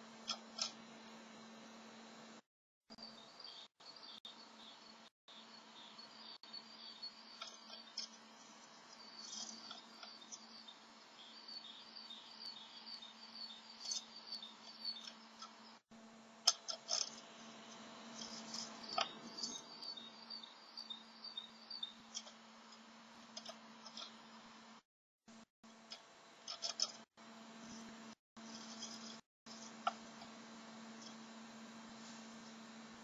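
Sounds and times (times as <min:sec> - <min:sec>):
sharp scratchy clicks: 0:00.0 - 0:00.9, 0:25.9 - 0:31.4
steady low hum: 0:00.0 - 0:33.0.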